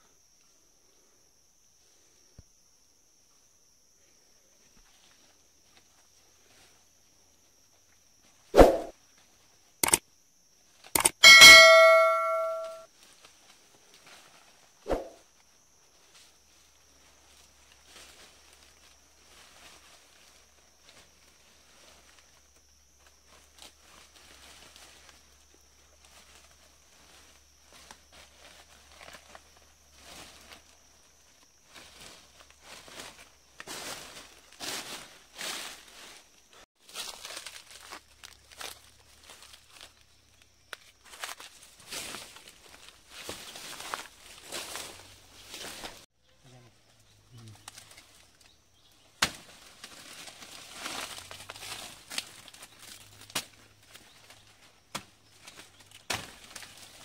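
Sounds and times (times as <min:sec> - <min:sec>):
quick clicks: 0:09.8 - 0:10.0, 0:11.0 - 0:11.2
bell ding: 0:11.0 - 0:12.9
footsteps on dry leaves and twigs: 0:23.1 - 0:46.1, 0:49.2 - 0:57.0.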